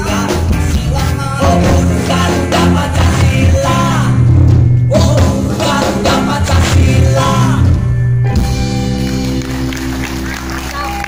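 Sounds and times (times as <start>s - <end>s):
man singing: 0.0s - 7.9s
live rock band: 0.0s - 11.0s.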